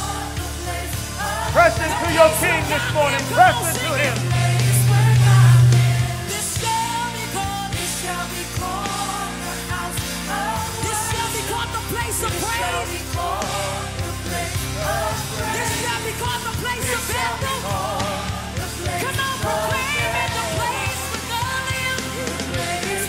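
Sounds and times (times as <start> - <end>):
people singing: 0.0 - 6.9, 8.2 - 23.0
band playing: 1.4 - 6.8.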